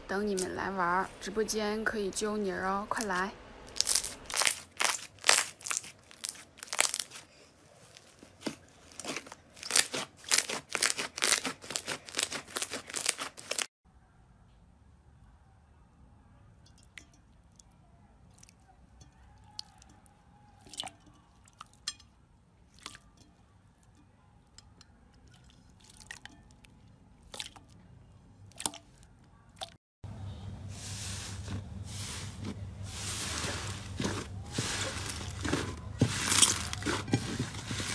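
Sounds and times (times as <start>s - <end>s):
slime crackling and popping: 3.7s - 13.7s.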